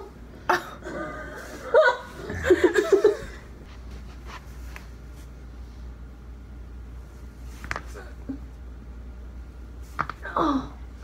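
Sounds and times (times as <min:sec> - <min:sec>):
person laughing: 0:00.5 - 0:03.5.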